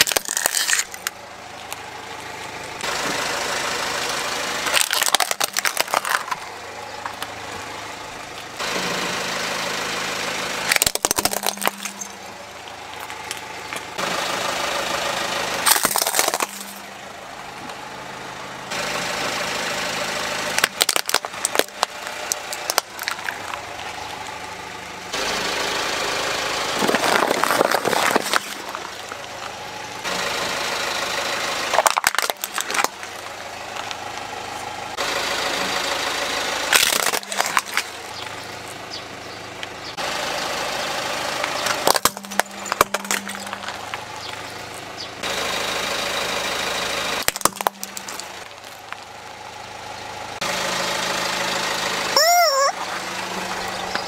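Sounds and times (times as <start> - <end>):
plastic cracking under tyre: 0.0 - 1.8, 4.6 - 7.4, 10.7 - 14.0, 15.6 - 16.9, 20.5 - 24.4, 26.8 - 29.6, 31.7 - 34.3, 36.7 - 38.8, 41.5 - 44.9, 47.2 - 49.1
car engine idling: 0.0 - 54.0.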